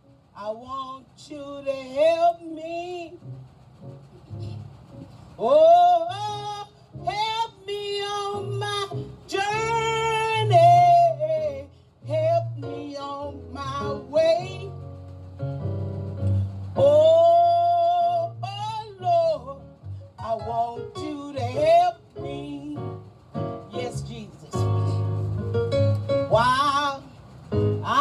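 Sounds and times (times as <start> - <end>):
woman singing gospel solo: 0.4 - 3.2, 5.4 - 14.8, 16.8 - 23.0, 23.7 - 25.1, 26.3 - 27.2, 27.8 - 28.0
low instrumental accompaniment: 13.2 - 18.7, 19.4 - 26.8.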